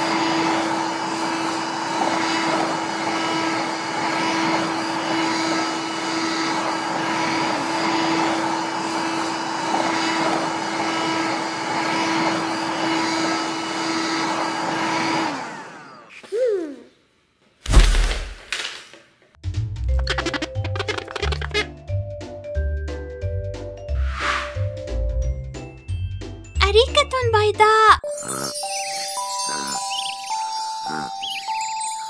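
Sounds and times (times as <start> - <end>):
toy vacuum cleaner whirring: 0.0 - 16.3.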